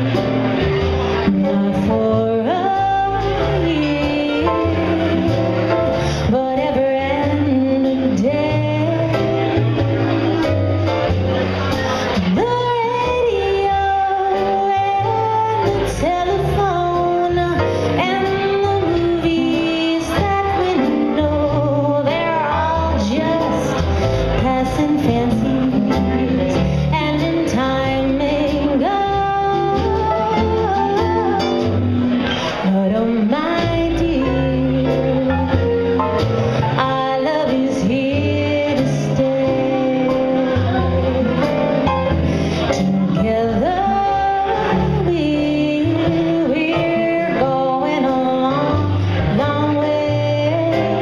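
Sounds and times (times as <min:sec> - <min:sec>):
woman singing: 0:00.0 - 0:10.5, 0:11.7 - 0:51.0
drum kit: 0:00.0 - 0:51.0.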